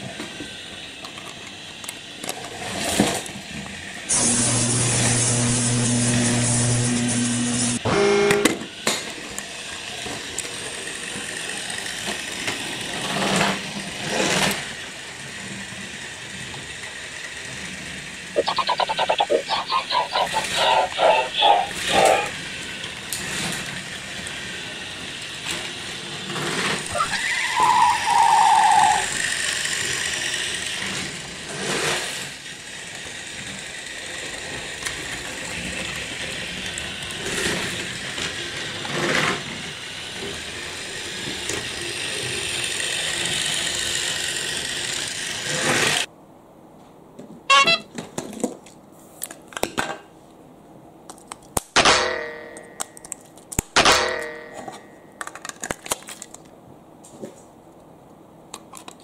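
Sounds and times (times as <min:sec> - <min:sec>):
toy train motor whir: 0:00.0 - 0:46.1
short buzzing tone: 0:47.5 - 0:47.9.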